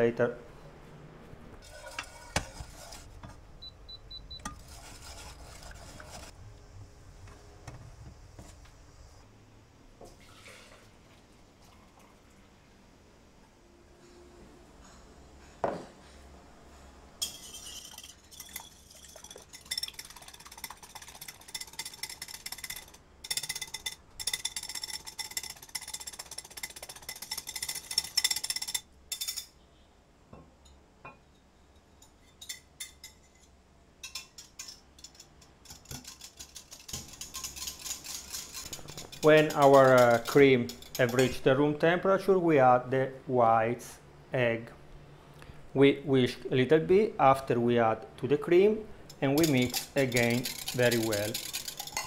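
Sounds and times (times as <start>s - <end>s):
egg whites whisked in bowl: 1.6s - 3.3s, 4.4s - 6.4s, 17.2s - 28.8s, 34.1s - 41.8s, 49.1s - 52.0s
whisk tapping glass jug: 17.2s - 29.4s, 34.0s - 41.5s, 49.1s - 52.0s.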